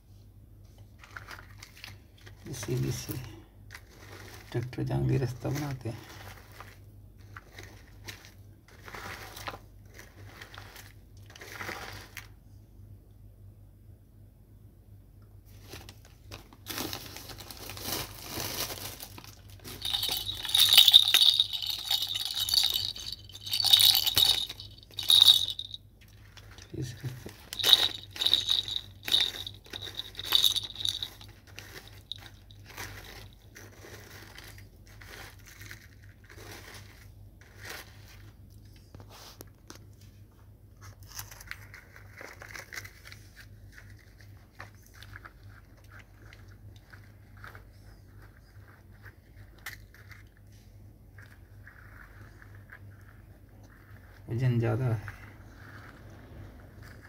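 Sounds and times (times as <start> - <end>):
toy excavator scraping dry soil: 3.8 - 4.6, 5.5 - 12.3, 32.6 - 38.2.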